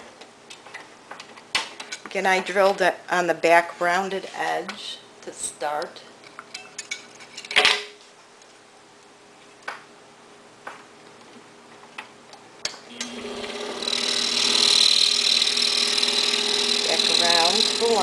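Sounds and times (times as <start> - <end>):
scroll saw running: 12.9 - 18.0.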